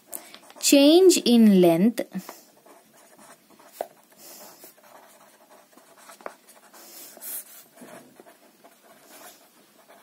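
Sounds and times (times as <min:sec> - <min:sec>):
felt-tip pen scratching on paper: 0:02.5 - 0:10.0.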